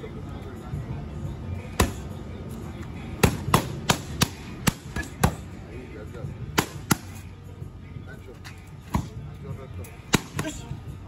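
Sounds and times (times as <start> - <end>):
boxing gloves smacking mitts: 3.2 - 5.5, 6.5 - 7.2, 10.1 - 10.7.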